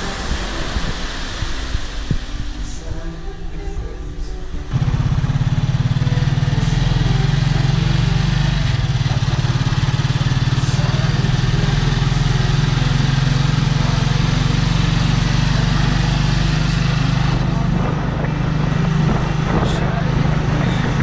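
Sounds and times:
motorcycle engine running: 4.7 - 21.0.

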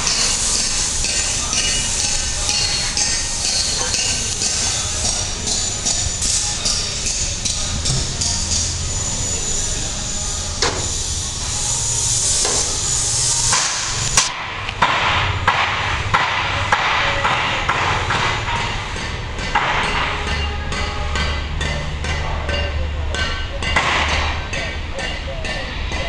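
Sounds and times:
hammer clanking on steel: 0.0 - 8.9, 13.5 - 26.0
loud hiss: 0.0 - 19.0.

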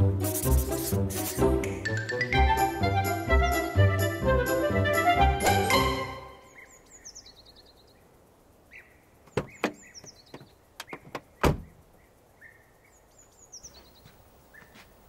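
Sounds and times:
faint bird chirps: 6.3 - 15.0
sharp knocks: 9.3 - 11.7.

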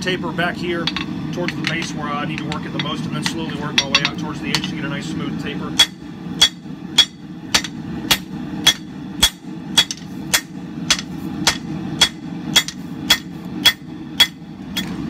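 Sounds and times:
hammer striking steel on anvil: 0.8 - 4.8, 5.7 - 15.0.

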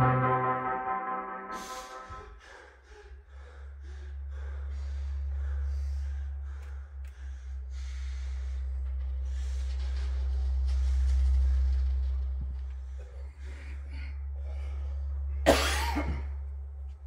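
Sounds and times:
deep low drone: 0.0 - 17.0.

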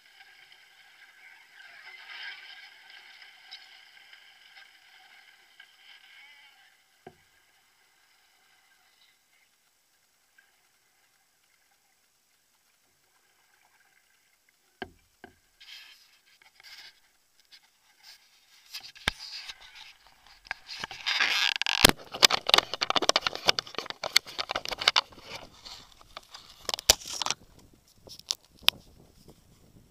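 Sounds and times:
plastic clicks scraping and rubbing: 15.6 - 28.9.

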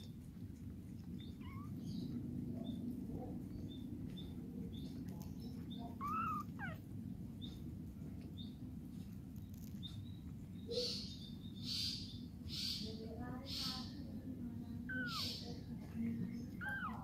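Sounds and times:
steady low hum: 0.0 - 17.0
kitten squeaking: 1.2 - 2.1, 5.6 - 6.9, 14.8 - 15.5, 16.5 - 17.0.

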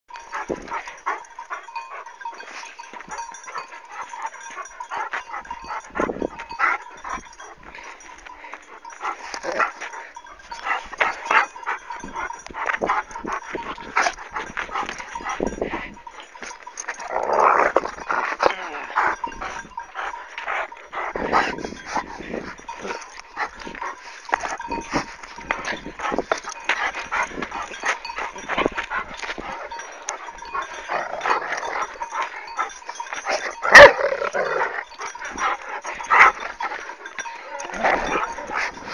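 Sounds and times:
dog growling and barking: 16.9 - 19.3, 27.0 - 38.9.

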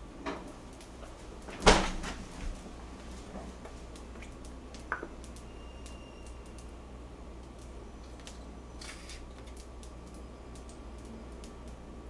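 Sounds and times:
plastic squeeze bottle squeezed: 8.8 - 9.4.

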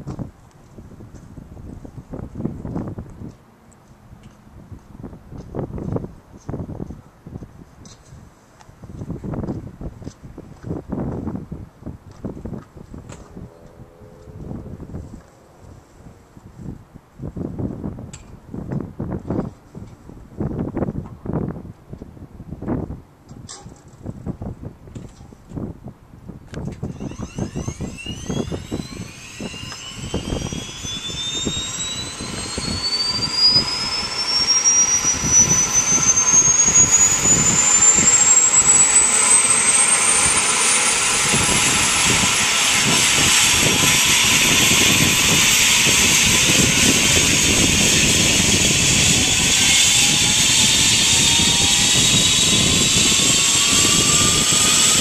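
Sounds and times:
helicopter turbine whine: 12.8 - 18.0, 26.7 - 55.0
helicopter rotor beat: 26.8 - 55.0.

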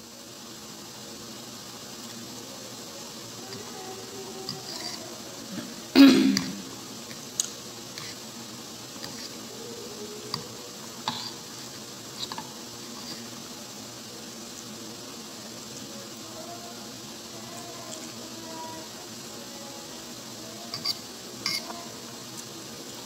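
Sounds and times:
person coughing: 5.5 - 6.7.

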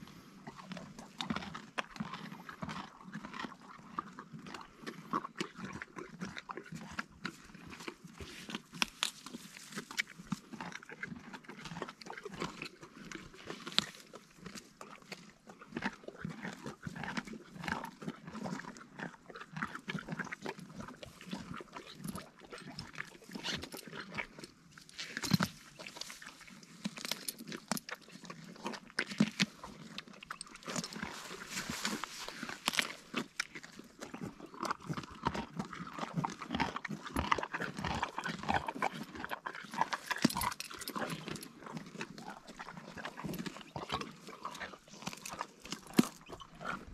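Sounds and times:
donkeys chewing crunchily: 0.0 - 46.9.

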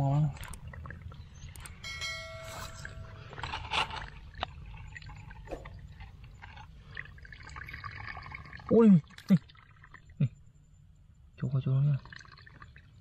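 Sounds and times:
bell-like chime: 1.8 - 3.5.

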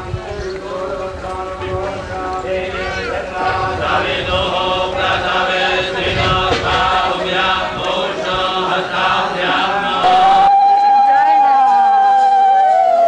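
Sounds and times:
men chanting together: 0.4 - 10.5.

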